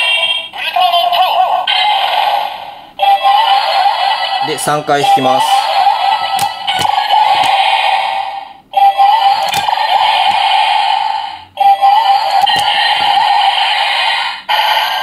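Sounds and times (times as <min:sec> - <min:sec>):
toy electronic sound effects and music: 0:00.0 - 0:15.0
plastic lever clicks: 0:06.4 - 0:07.6, 0:09.4 - 0:09.8, 0:12.4 - 0:12.8.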